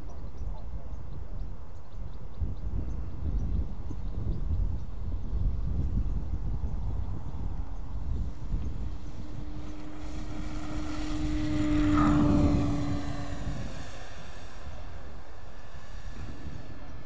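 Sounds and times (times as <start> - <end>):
model plane motor droning: 4.8 - 17.0.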